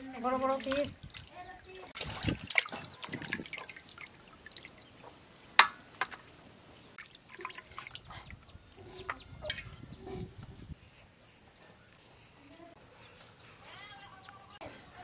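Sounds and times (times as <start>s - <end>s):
water splashing and dripping: 0.0s - 8.5s.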